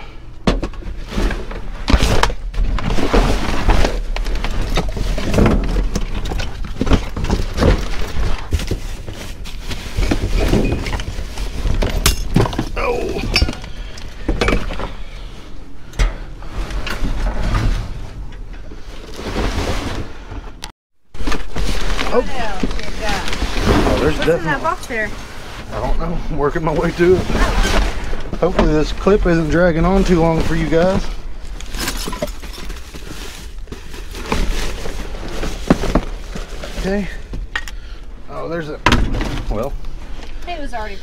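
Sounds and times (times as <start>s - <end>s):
plastic bags crinkling: 29.8s - 37.2s.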